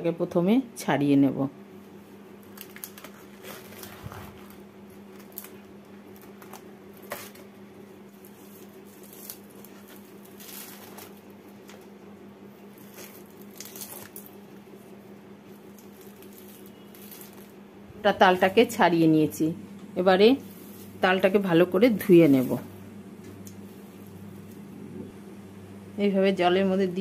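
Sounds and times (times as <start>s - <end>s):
steady low hum: 0.0s - 27.0s
fruit skin tearing: 8.2s - 11.9s, 12.6s - 14.5s, 15.6s - 17.6s.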